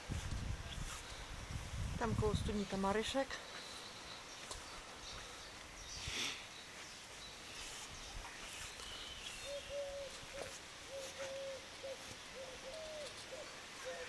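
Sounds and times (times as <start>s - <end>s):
small birds chirping: 0.2s - 14.0s
dove cooing: 9.4s - 14.0s.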